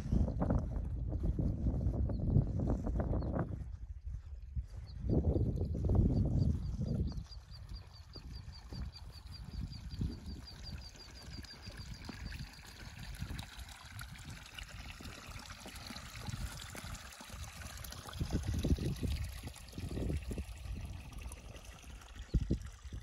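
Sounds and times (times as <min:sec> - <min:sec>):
water pouring onto stones: 0:11.0 - 0:23.0.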